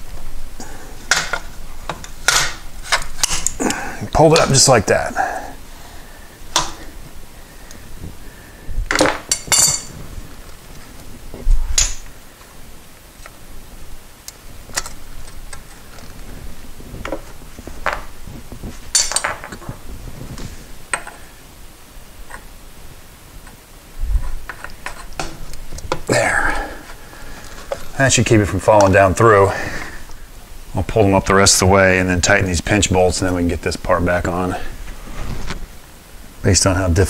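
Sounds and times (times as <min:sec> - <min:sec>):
metal tools clinking: 0:09.0 - 0:09.9, 0:18.9 - 0:19.6.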